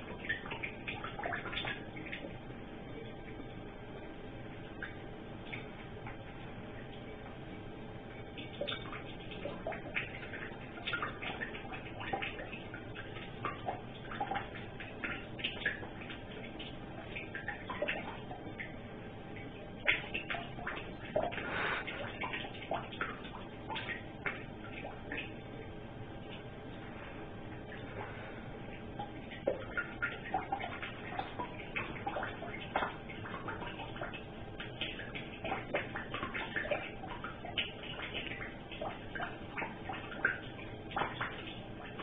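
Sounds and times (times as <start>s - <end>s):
water dripping and splashing: 0.0s - 3.5s, 4.4s - 42.0s
tap water hiss: 21.1s - 22.4s.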